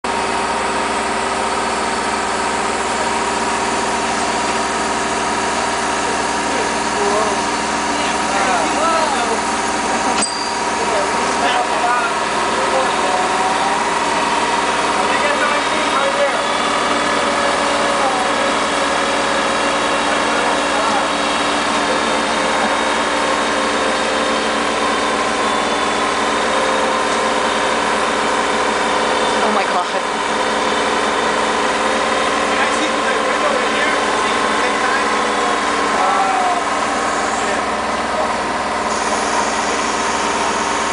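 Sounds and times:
truck engine running: 0.0s - 40.9s.

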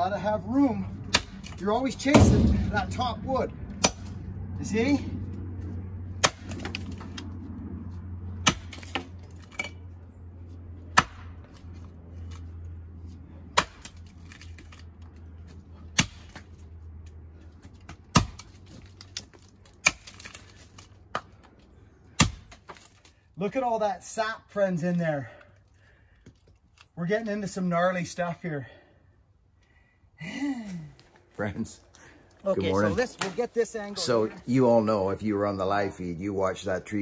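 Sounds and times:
axe chopping tree trunk: 1.0s - 4.2s, 6.1s - 7.3s, 8.4s - 9.2s, 10.9s - 12.4s, 13.4s - 14.9s, 15.7s - 16.5s, 17.7s - 21.5s, 22.1s - 23.1s.

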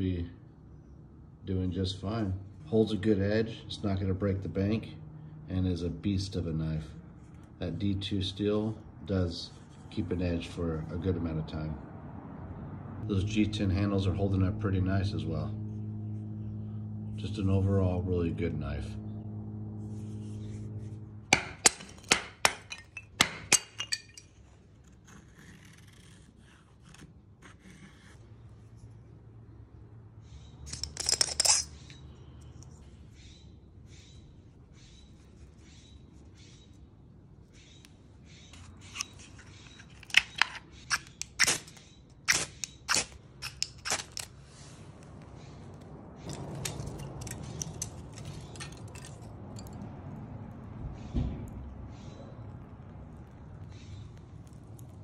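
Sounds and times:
ferro rod scraping: 19.8s - 28.9s
sharp clacks and clinks: 21.3s - 24.4s, 30.6s - 32.1s, 46.2s - 49.9s
knife scraping wooden stick: 24.8s - 29.0s, 30.7s - 32.0s, 38.4s - 44.8s
fire burning with crackles: 51.4s - 55.0s.

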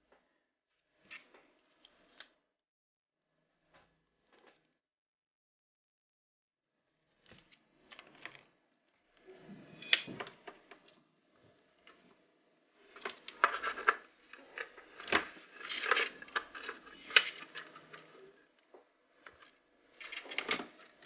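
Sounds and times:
cable rustling and rubbing: 12.8s - 21.0s.

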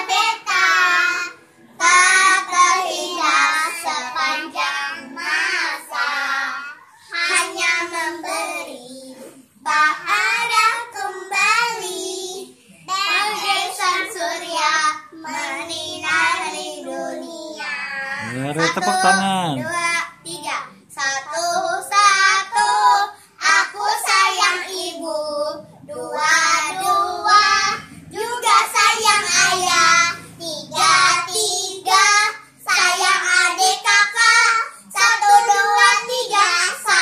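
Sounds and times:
girls singing together: 0.0s - 37.0s.

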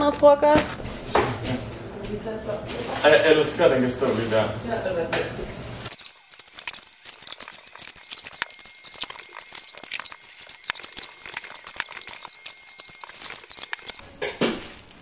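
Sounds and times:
faint steady high tone: 5.9s - 14.0s
small items clicking and clinking: 5.9s - 14.0s
paper bag rustling: 14.4s - 15.0s.

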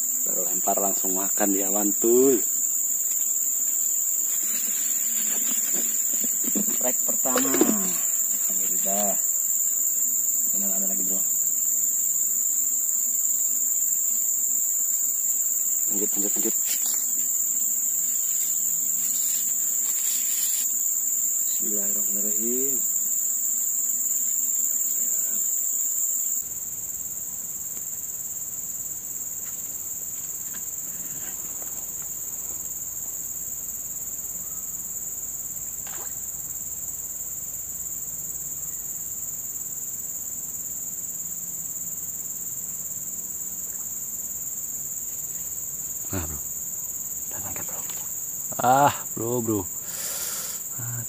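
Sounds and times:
high-pitched insect chorus drone: 0.0s - 51.0s.

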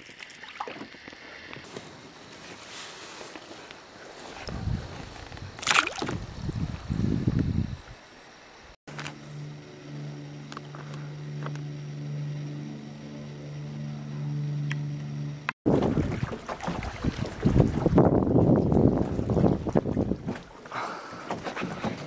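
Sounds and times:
choppy lake water: 0.0s - 8.1s, 15.7s - 22.0s
steady low hum: 1.1s - 20.2s
wind buffeting microphone: 4.4s - 8.0s, 15.7s - 20.6s.

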